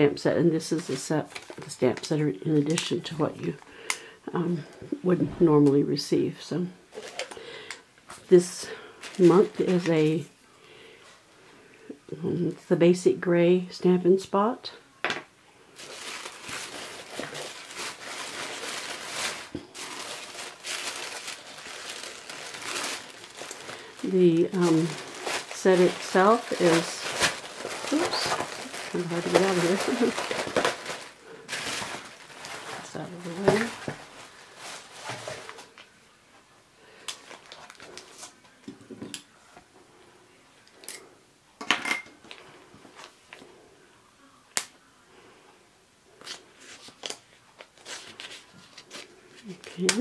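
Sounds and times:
tissue paper rustling and crinkling: 0:00.6 - 0:03.6, 0:06.9 - 0:07.4, 0:08.2 - 0:10.3, 0:15.7 - 0:36.0, 0:37.2 - 0:38.6, 0:46.2 - 0:50.0.

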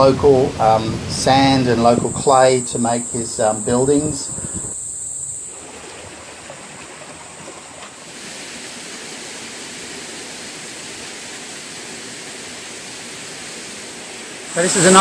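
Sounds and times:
waterfall rushing: 0:08.1 - 0:15.0.

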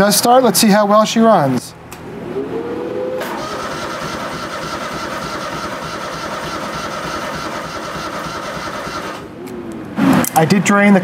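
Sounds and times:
electric starter whine: 0:03.2 - 0:09.4
engine running: 0:03.2 - 0:09.4.

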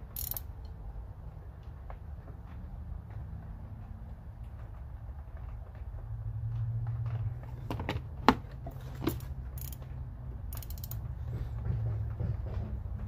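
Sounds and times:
metal wrenches clinking: 0:00.0 - 0:00.6, 0:08.7 - 0:11.1
ratchet wrench clicking: 0:00.0 - 0:00.8, 0:09.0 - 0:11.2.

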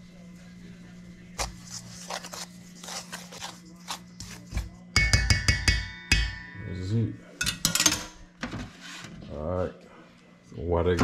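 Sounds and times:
hands rustling dry batter: 0:01.3 - 0:04.9
metal bowl knocked ringing: 0:05.0 - 0:08.1.

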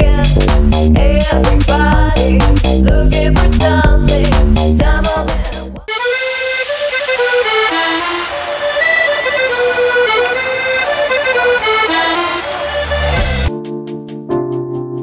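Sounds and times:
held chords over ticking beat: 0:00.0 - 0:15.0
lively background music: 0:00.0 - 0:15.0.

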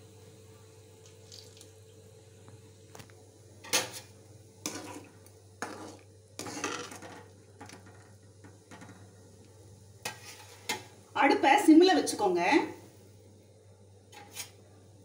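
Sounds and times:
ladle knocking and scraping a pan: 0:03.6 - 0:09.1, 0:10.0 - 0:10.9, 0:14.1 - 0:14.5.

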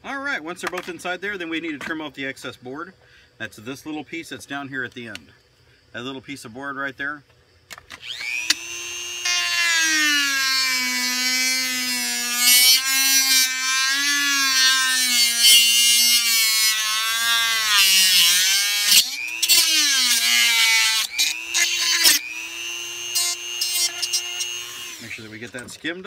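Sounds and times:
rotary tool cut-off disc whine: 0:07.7 - 0:25.9.

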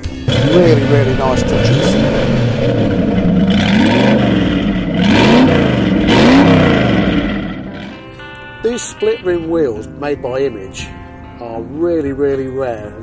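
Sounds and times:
car engine revving: 0:00.0 - 0:08.3.

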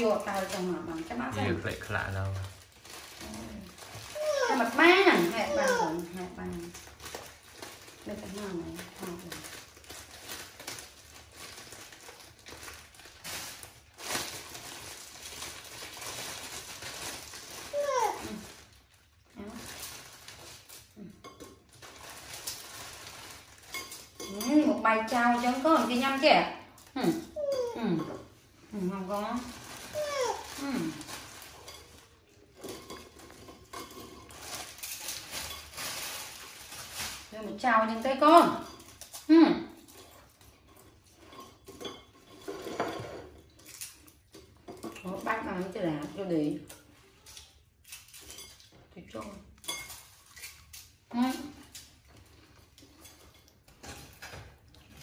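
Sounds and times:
plastic bag crinkling: 0:00.0 - 0:55.0.

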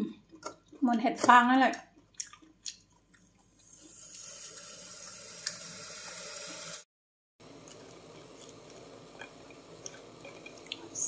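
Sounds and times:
water running from kitchen tap: 0:03.4 - 0:06.9.

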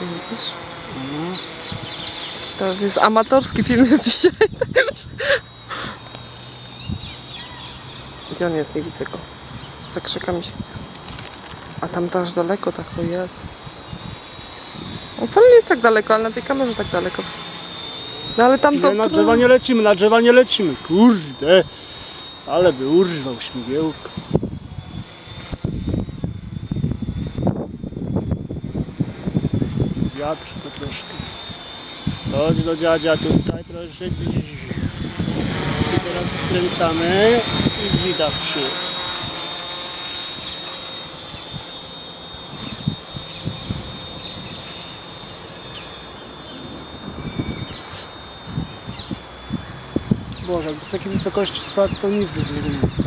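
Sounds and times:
quadcopter motors buzzing: 0:00.0 - 0:53.0
wind buffeting microphone: 0:12.8 - 0:15.6, 0:23.7 - 0:39.4, 0:42.4 - 0:44.8, 0:46.5 - 0:53.0.

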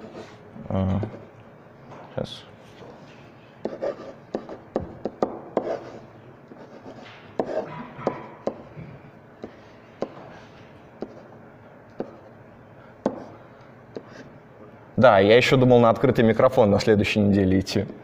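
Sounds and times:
marker pen on whiteboard: 0:00.0 - 0:00.4, 0:02.6 - 0:12.4, 0:13.0 - 0:14.3, 0:17.7 - 0:18.0.

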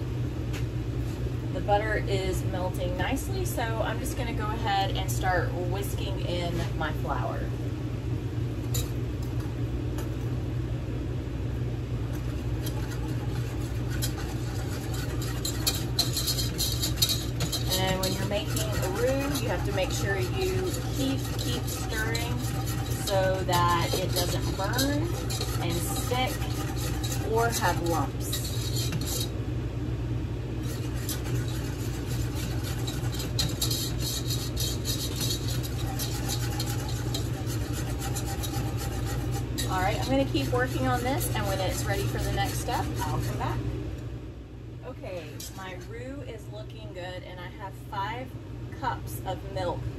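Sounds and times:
low machine hum: 0:00.0 - 0:49.9
whisk clinking against saucepan: 0:12.3 - 0:29.3, 0:30.6 - 0:43.4.

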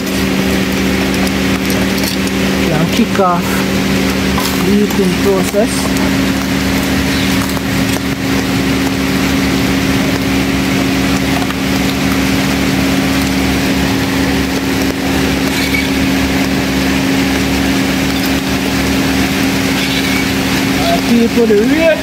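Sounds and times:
rain falling: 0:00.0 - 0:22.0
steady motor hum: 0:00.0 - 0:22.0.

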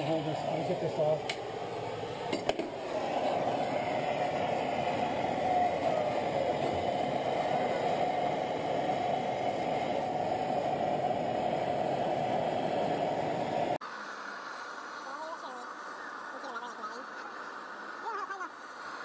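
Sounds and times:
torch burning steadily: 0:00.0 - 0:13.8.

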